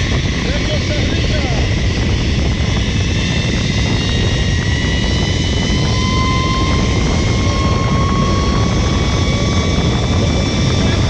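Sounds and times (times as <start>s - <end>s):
wind rumble on microphone: 0.0s - 11.0s
zip-line pulleys whining on cable: 0.0s - 11.0s.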